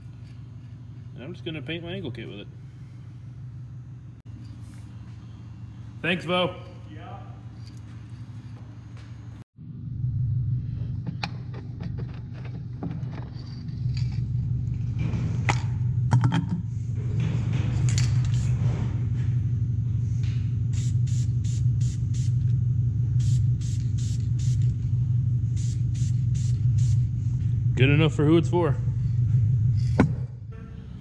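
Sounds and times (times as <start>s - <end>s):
spray paint hissing: 20.7s - 22.4s, 23.2s - 24.7s, 25.5s - 27.1s.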